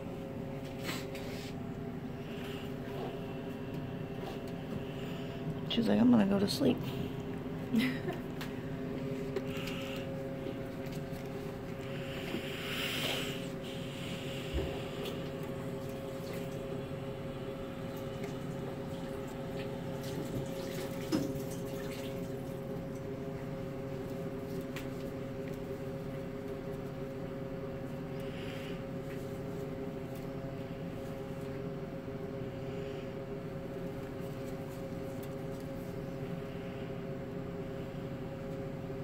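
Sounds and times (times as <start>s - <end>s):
electrical hum: 0.0s - 39.0s.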